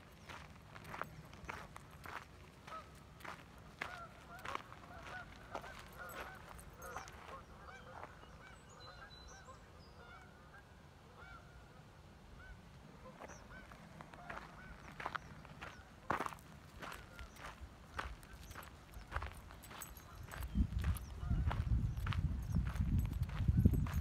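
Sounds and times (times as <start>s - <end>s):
footsteps: 0.0s - 7.4s, 13.1s - 24.0s.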